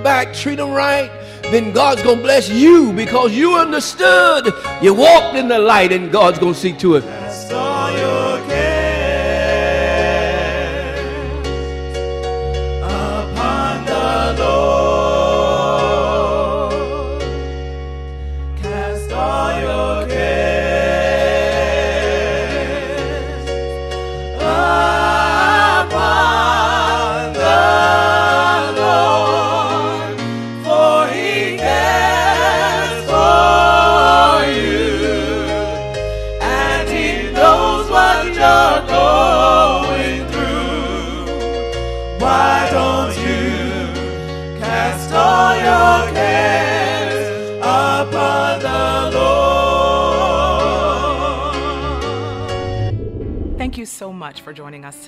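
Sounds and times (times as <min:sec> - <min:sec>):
voices singing gospel: 0:00.0 - 0:12.0, 0:12.8 - 0:17.5, 0:18.6 - 0:52.7
bass line: 0:51.9 - 0:53.9.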